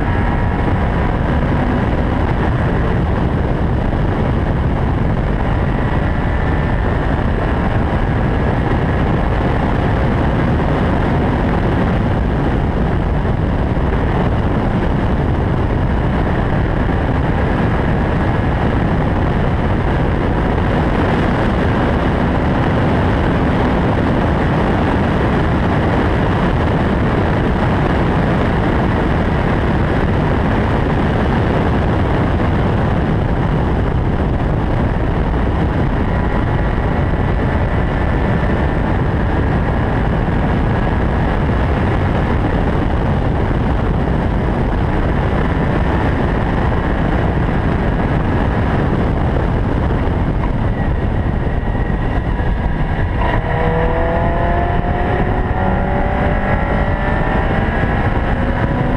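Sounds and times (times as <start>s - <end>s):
sports car engine: 0.0s - 58.9s
wind and road noise: 0.0s - 58.9s.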